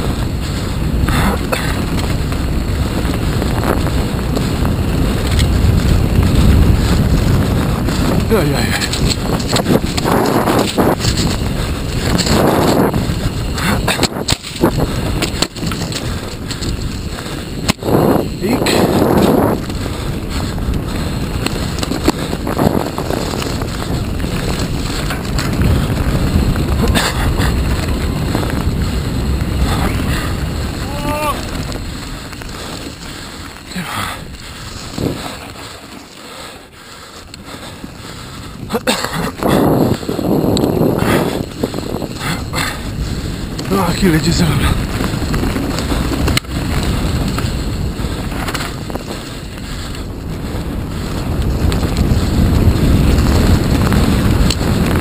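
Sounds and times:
bike tyres rolling on dirt trail: 0.0s - 55.0s
wind on microphone: 0.0s - 55.0s
sharp clacks from bike: 1.5s - 8.2s, 8.8s - 18.2s, 18.8s - 29.0s, 44.6s - 55.0s.

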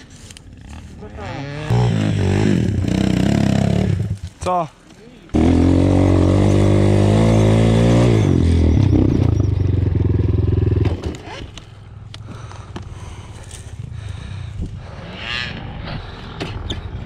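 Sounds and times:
motorbike engine revving: 0.6s - 4.2s, 5.3s - 11.6s.

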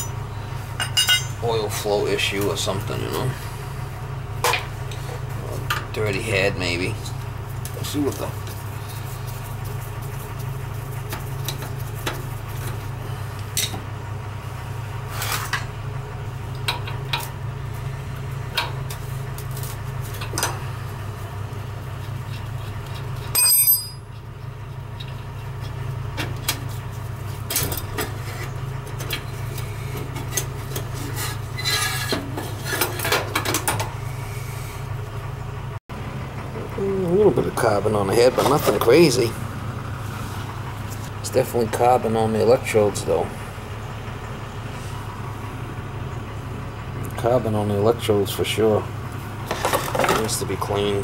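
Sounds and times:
sharp ringing clink: 0.8s - 1.4s, 23.4s - 24.1s
metal clicks and scrapes of parts: 25.0s - 33.9s.

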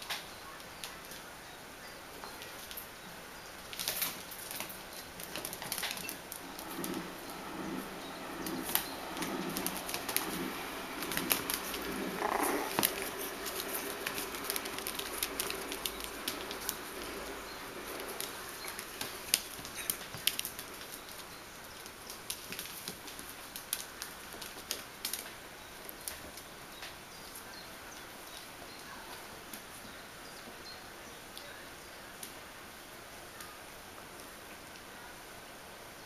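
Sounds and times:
puppies' claws clicking on tile floor: 3.7s - 7.0s, 8.4s - 27.0s.

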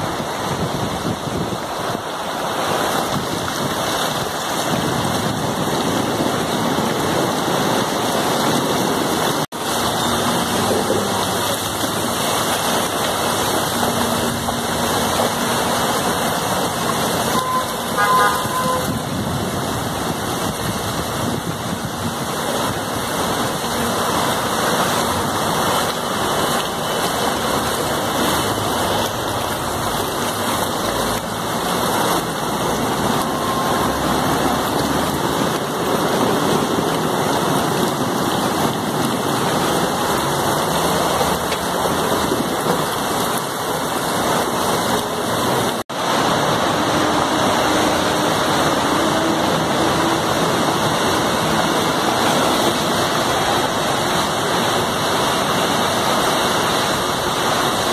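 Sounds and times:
heavy rain: 0.0s - 57.9s
rushing floodwater: 0.0s - 57.9s
vehicle horn toot: 17.2s - 19.0s.

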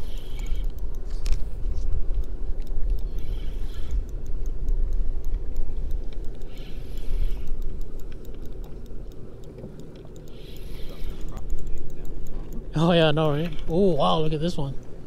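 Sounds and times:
spinning reel cranking: 0.0s - 9.1s, 9.9s - 14.7s
faint steady hum: 0.0s - 15.0s
faint ticks: 0.0s - 15.0s.

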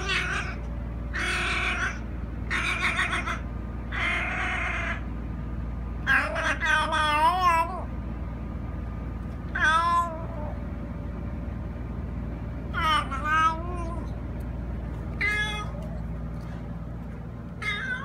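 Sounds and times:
cat meowing: 9.5s - 10.6s, 15.2s - 15.9s, 17.6s - 18.0s.

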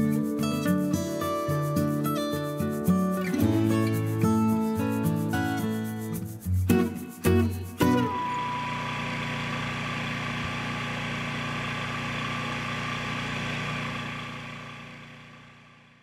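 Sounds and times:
engine idling: 8.0s - 16.0s.

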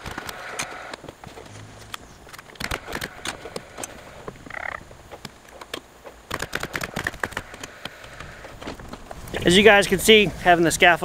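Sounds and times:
small clicks: 0.0s - 9.1s
nail gun shots: 6.3s - 7.7s.

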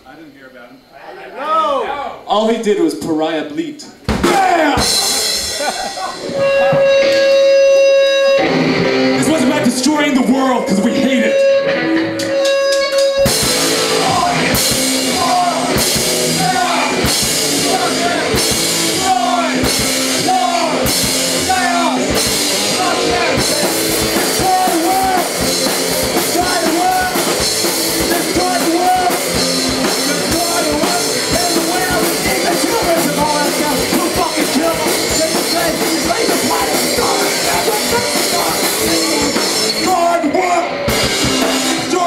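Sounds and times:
punk rock band playing loudly: 4.1s - 42.0s
person singing: 13.8s - 40.8s.

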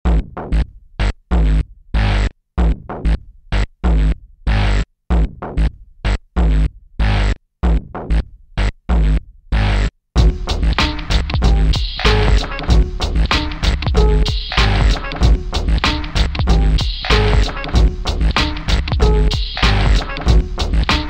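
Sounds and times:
electronic music synth stabs: 10.2s - 21.0s.

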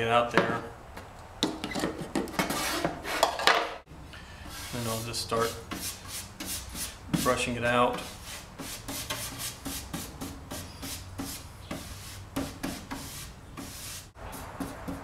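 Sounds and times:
brush scratching on wood panel: 4.5s - 15.0s.

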